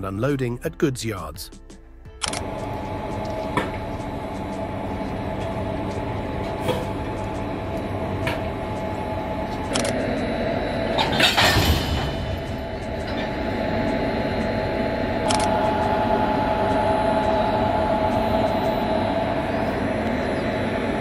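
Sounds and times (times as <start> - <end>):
sharp clicks: 2.2 - 2.4, 9.7 - 10.0, 15.2 - 15.6
electric locomotive hum: 2.2 - 21.0.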